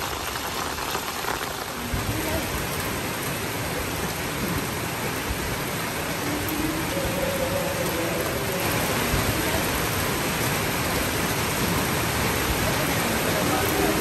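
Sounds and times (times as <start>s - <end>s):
heavy rain: 0.0s - 14.0s.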